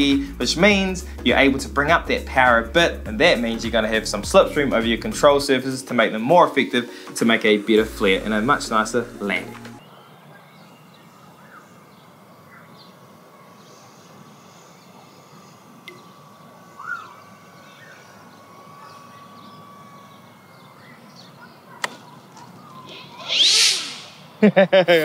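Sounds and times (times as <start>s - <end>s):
electric motor whine: 0.0s - 24.4s
birds chirping: 5.6s - 24.4s
rising and falling chirp: 9.8s - 24.6s
sharp click: 21.8s - 22.0s.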